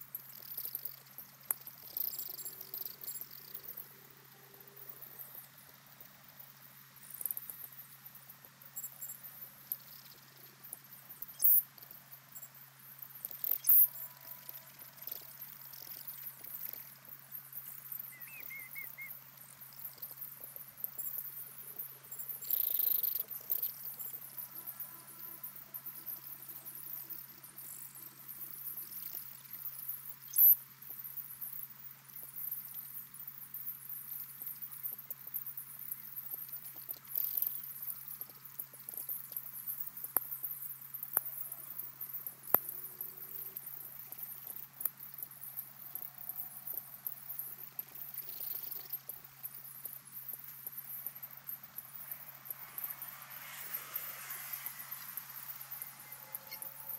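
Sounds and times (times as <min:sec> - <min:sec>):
high-pitched crackle: 0:00.0 - 0:06.3, 0:07.0 - 0:56.9
high-pitched chirring chorus: 0:52.1 - 0:56.9.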